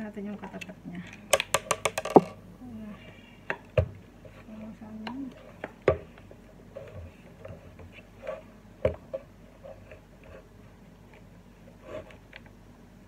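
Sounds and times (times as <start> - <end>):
hard plastic parts knocking: 1.3 - 2.4.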